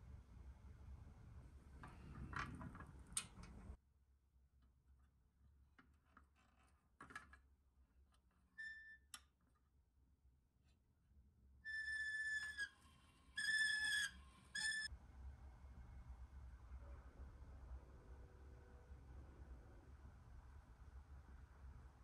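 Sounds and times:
high steady whistling tone: 0:11.7 - 0:14.9.

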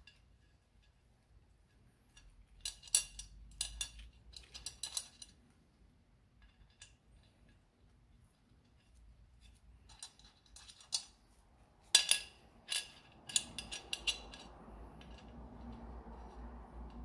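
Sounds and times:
hand tool clinking on metal: 0:12.0 - 0:14.5
low rumbling noise: 0:12.4 - 0:17.0.

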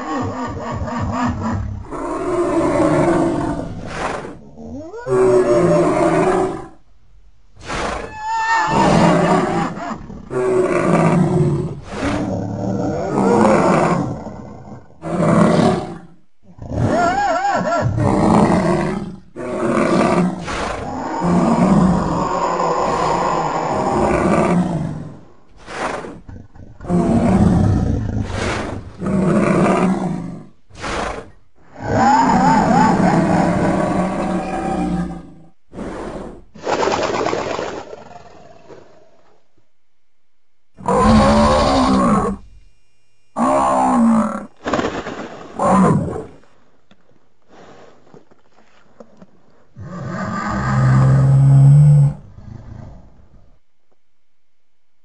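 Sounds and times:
creature roaring bellows: 0:07.6 - 0:25.8, 0:26.7 - 0:36.4, 0:40.8 - 0:42.6, 0:49.8 - 0:53.1
deep bellowing roar: 0:40.8 - 0:42.6.

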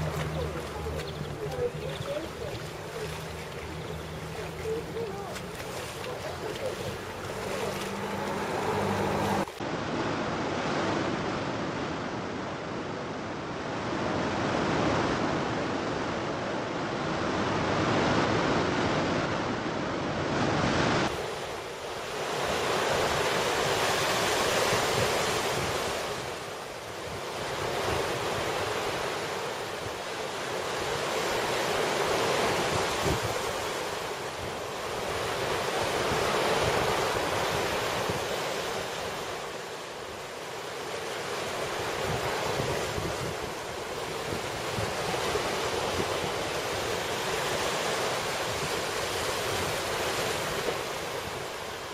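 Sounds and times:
surf washing on shore: 0:00.0 - 0:51.9
wind on microphone: 0:22.6 - 0:40.2, 0:40.8 - 0:51.9.

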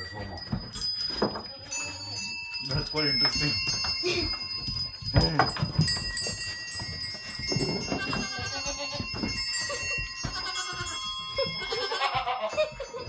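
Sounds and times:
bells ringing: 0:00.0 - 0:13.0
goats bleating: 0:07.9 - 0:09.2, 0:10.2 - 0:12.8.

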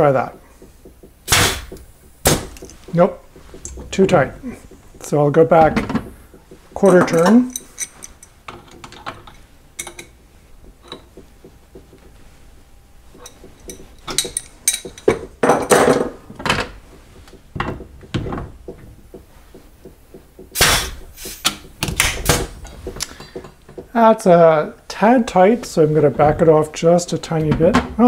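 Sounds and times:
metal knocks and clunks: 0:00.0 - 0:12.4, 0:13.1 - 0:24.0, 0:26.2 - 0:26.7, 0:27.3 - 0:28.0
wrench clicking: 0:06.4 - 0:10.1.

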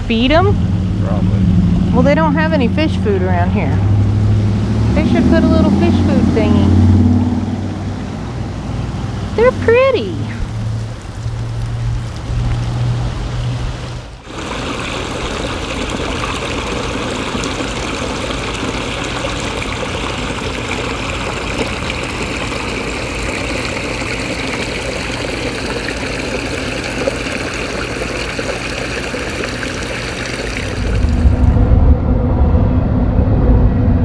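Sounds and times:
low hum: 0:00.0 - 0:24.6, 0:30.4 - 0:34.0
waterfall splashing into pond: 0:09.2 - 0:31.3.

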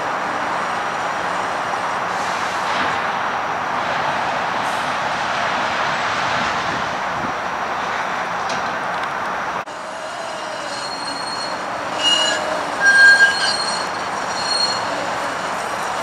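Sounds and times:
steady background noise: 0:00.0 - 0:16.0
streetcar wheels squealing: 0:09.7 - 0:16.0.

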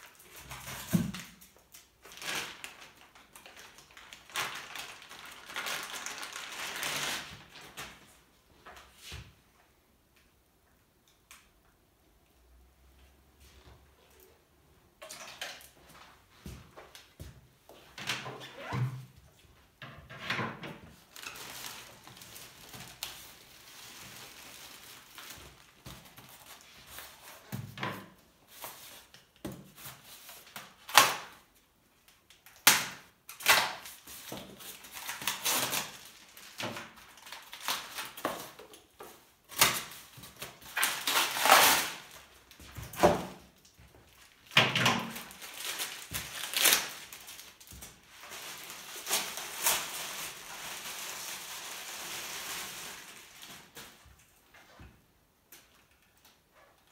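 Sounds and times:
packaging rustling and scraping: 0:02.0 - 0:08.1, 0:21.0 - 0:27.5, 0:33.8 - 0:54.0.

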